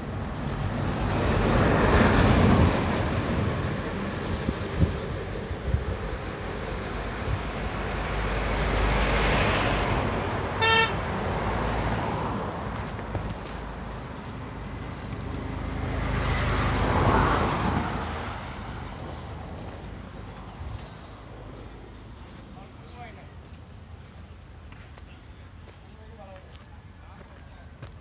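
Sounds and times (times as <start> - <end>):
bus passing: 0.0 - 28.0
vehicle passing: 6.4 - 22.1
vehicle horn toot: 10.6 - 11.1.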